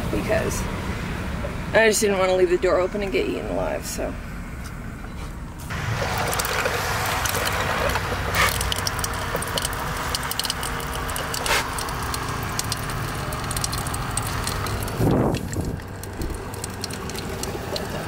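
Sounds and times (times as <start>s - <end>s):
water running into metal sink: 5.7s - 18.0s
water splashing on metal: 5.7s - 18.0s.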